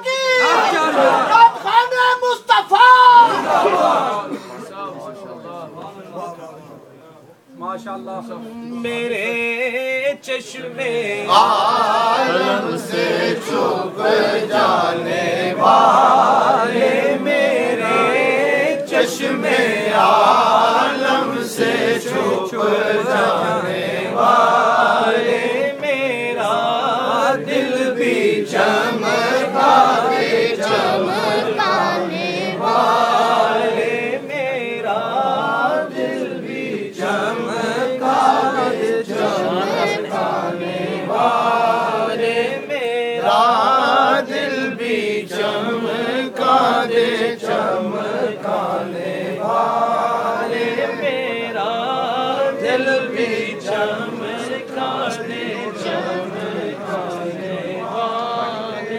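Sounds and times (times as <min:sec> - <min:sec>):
man singing over public address: 0:07.5 - 0:12.6.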